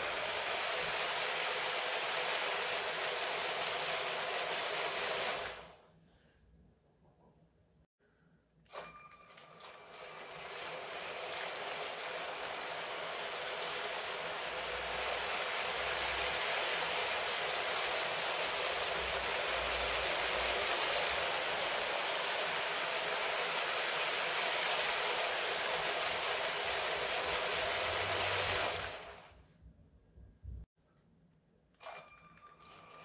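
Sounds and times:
toy train wheels rattling: 8.8s - 29.0s.

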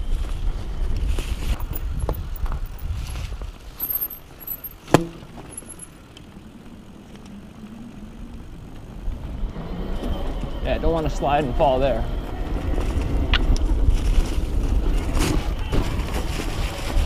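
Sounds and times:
wind rumble on microphone: 0.0s - 17.0s
sharp knock from bike: 4.9s - 5.5s.

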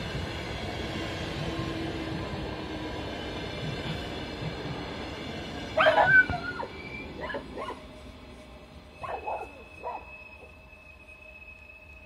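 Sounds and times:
passing train rumble: 0.0s - 12.0s
small dog barking and yipping: 5.8s - 7.8s, 9.0s - 10.1s.

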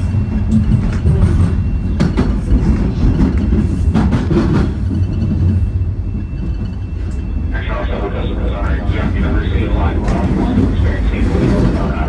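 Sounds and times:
subway train rumbling: 0.0s - 12.0s
faint high whine: 5.0s - 10.0s.

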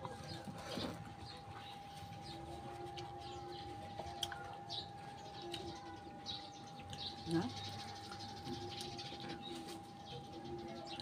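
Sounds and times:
birds chirping: 0.0s - 11.0s
birds cooing: 0.0s - 11.0s.

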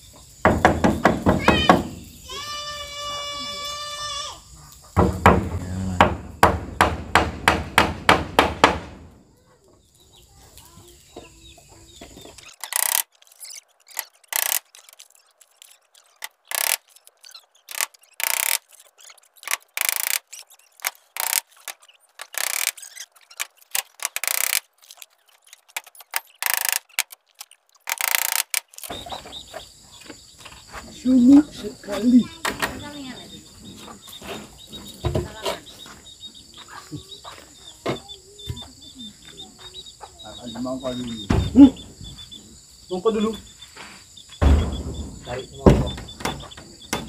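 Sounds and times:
hammer driving nails into wood: 5.0s - 9.0s, 12.6s - 13.1s, 14.4s - 14.7s, 16.3s - 16.9s, 17.7s - 18.7s, 19.4s - 27.2s, 27.9s - 29.0s.

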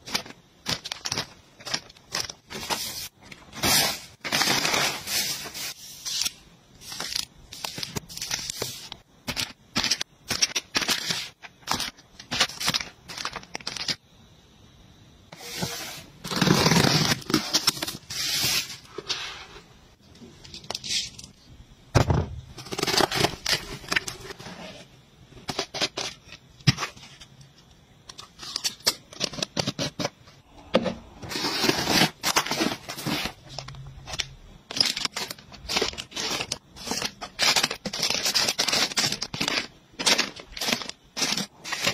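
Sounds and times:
plastic packaging crinkling: 0.0s - 14.0s, 31.3s - 41.9s.

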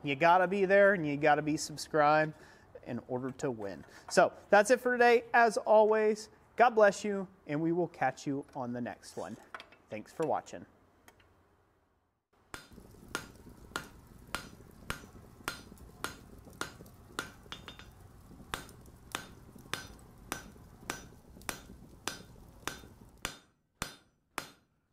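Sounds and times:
low steady rumble: 12.8s - 23.2s
hammer striking an anvil: 18.6s - 24.6s.

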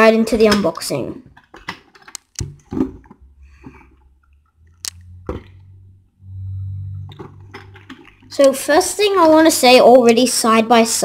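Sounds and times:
low steady rumble: 3.0s - 9.5s.

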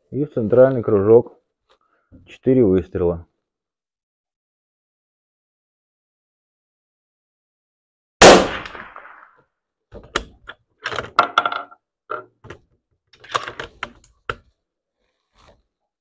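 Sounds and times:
rifle shot echoing: 8.2s - 9.4s.

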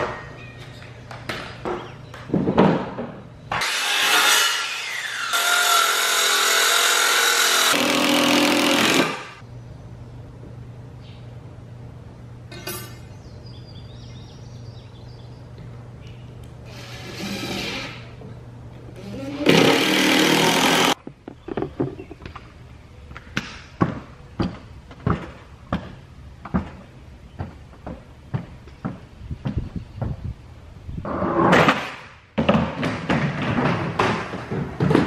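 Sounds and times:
cordless drill driving screws: 19.0s - 21.0s.

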